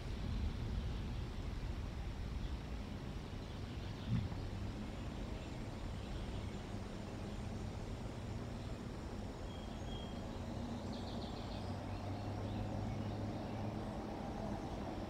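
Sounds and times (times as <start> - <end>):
outdoor background hum: 0.0 - 15.0
small bird chirping: 9.4 - 13.8.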